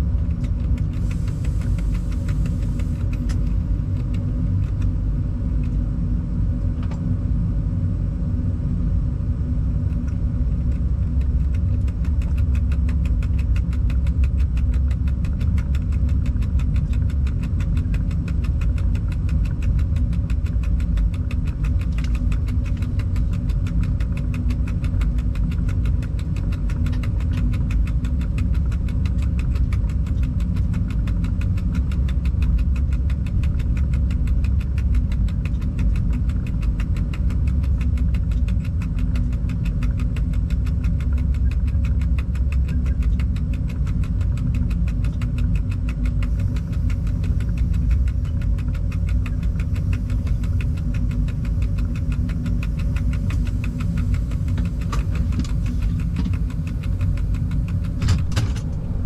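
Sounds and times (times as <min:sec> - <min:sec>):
locomotive low rumble: 0:00.0 - 0:59.0
fast even ticking: 0:11.1 - 0:59.0.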